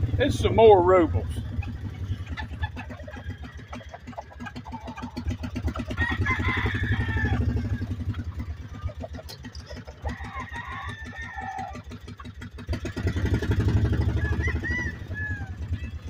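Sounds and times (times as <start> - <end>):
small engine idling: 0.0 - 16.0
rooster crowing: 5.0 - 8.2, 10.0 - 12.0, 14.0 - 15.9.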